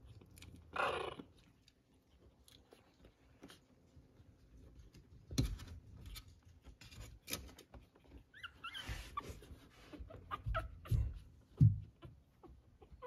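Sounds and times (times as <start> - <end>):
knocks and rustling: 4.8 - 8.2
puppy squeaks: 7.8 - 13.0.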